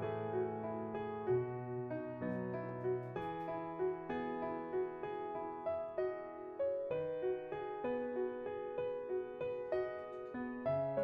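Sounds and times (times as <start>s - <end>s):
gentle piano music: 0.0s - 11.0s.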